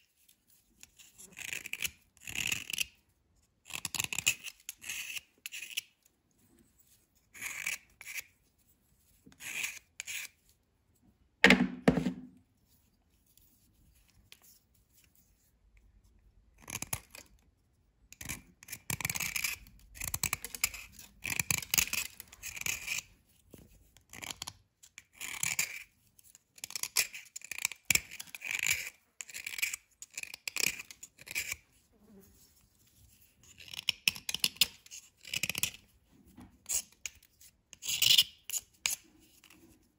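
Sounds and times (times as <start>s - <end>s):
knife scraping a dry bar: 0.0s - 3.0s, 3.6s - 10.7s, 18.1s - 35.9s, 36.6s - 39.9s.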